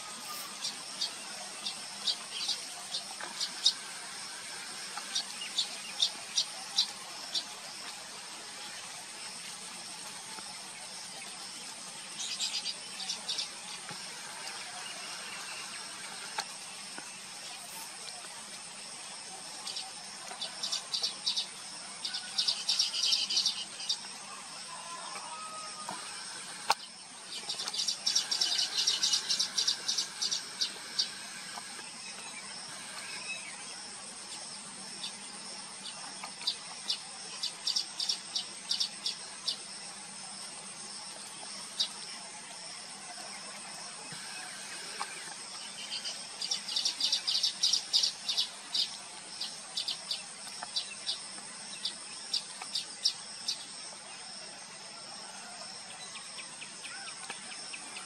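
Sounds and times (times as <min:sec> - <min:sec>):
high-pitched insect drone: 0:00.0 - 0:58.0
birds chattering: 0:25.9 - 0:33.4.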